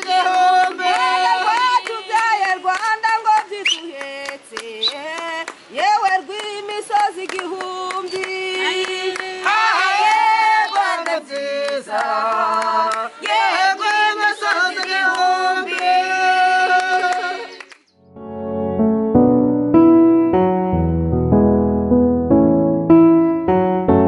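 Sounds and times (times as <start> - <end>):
hand clapping: 0.0 - 5.6, 6.3 - 10.2, 10.8 - 13.4
women and children singing: 0.0 - 17.7.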